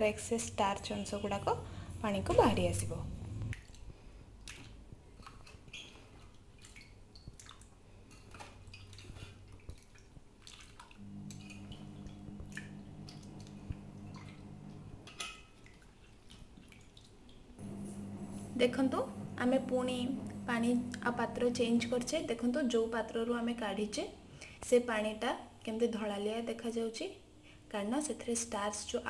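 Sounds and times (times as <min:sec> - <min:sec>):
low steady hum: 0:00.0 - 0:04.3, 0:11.0 - 0:15.8, 0:17.6 - 0:24.6
water dripping and splashing: 0:03.5 - 0:17.6.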